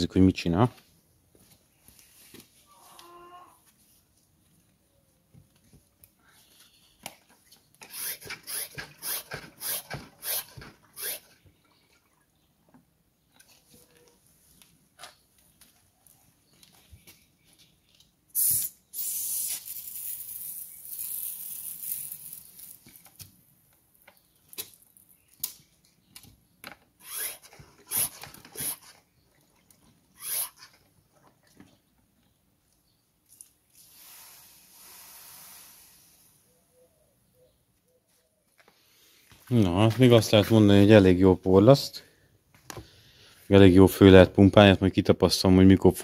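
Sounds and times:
pressure sprayer hissing: 7.9 - 11.3, 33.9 - 36.3.

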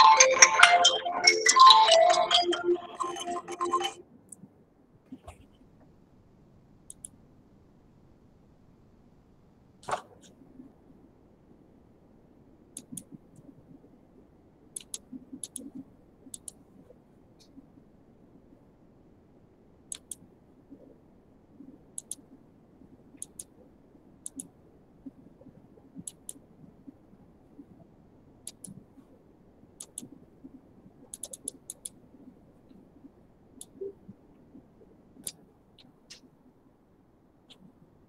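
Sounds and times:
low room noise: 0.0 - 38.0
small sharp clicks: 6.9 - 7.2, 12.8 - 13.5, 14.8 - 16.6, 19.9 - 20.2, 22.0 - 22.3, 23.2 - 23.6, 24.2 - 24.5, 26.0 - 26.4, 28.4 - 28.8, 29.8 - 30.1, 31.1 - 32.0.

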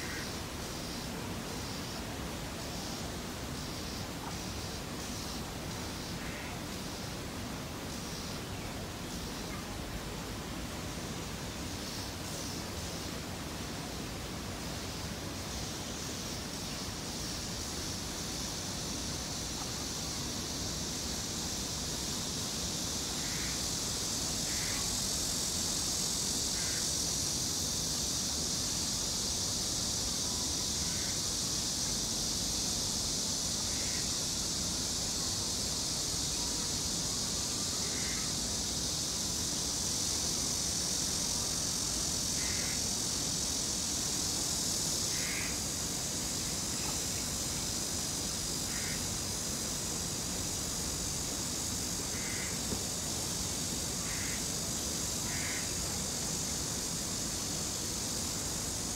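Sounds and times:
high-pitched insect drone: 15.5 - 58.9.

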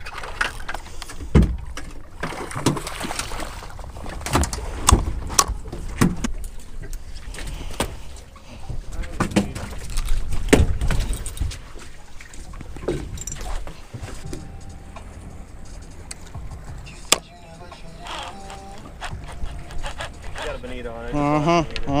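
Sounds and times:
water rumbling: 0.0 - 22.0.

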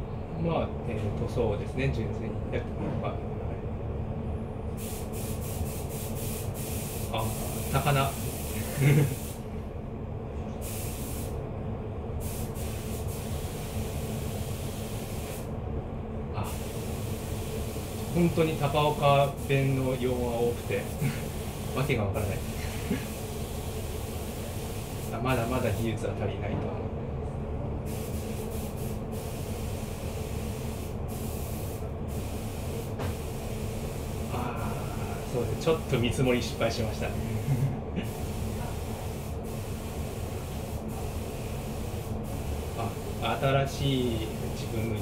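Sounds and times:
low hum and rumble: 0.0 - 45.0
high hiss: 10.6 - 11.3.

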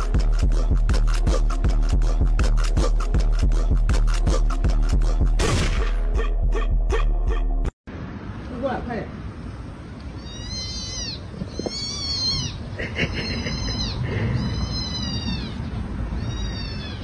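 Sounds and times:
kitten mewing: 10.2 - 15.6, 16.2 - 17.0.

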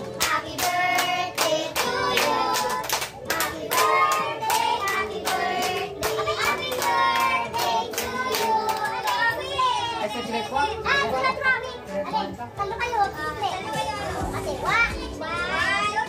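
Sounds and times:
group singing: 0.0 - 9.8.

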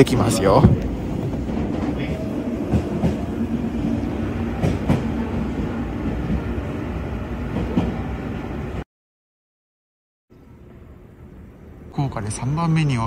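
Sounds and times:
train wheels rumbling on rails: 0.0 - 8.8.

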